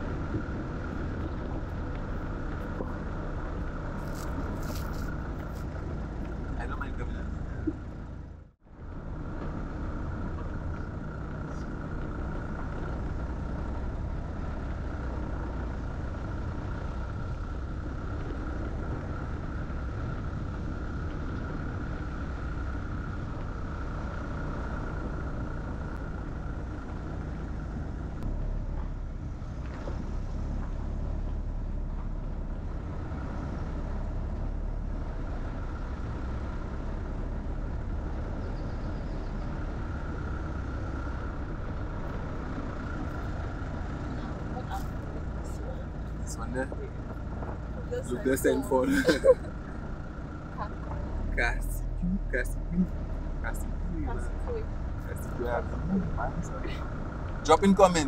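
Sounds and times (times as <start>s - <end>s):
car engine and road noise: 0.0s - 58.0s
constant hum: 0.0s - 58.0s.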